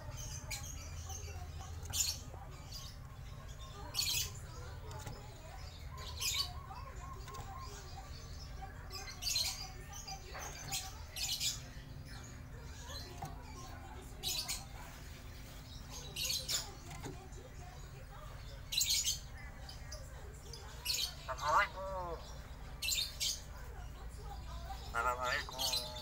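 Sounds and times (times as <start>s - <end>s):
myna bird calling: 20.5s - 26.0s.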